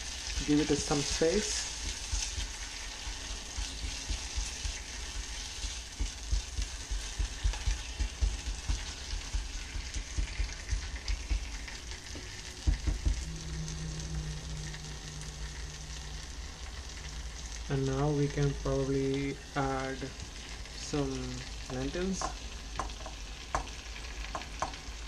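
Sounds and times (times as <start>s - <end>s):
low steady hum: 0.0s - 25.0s
masala sizzling in ghee: 0.0s - 25.0s.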